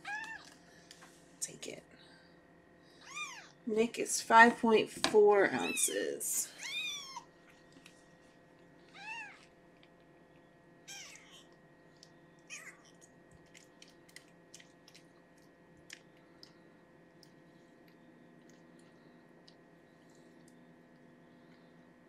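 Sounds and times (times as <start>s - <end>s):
kitten mewing: 3.0s - 3.5s, 8.9s - 9.4s, 10.9s - 11.5s.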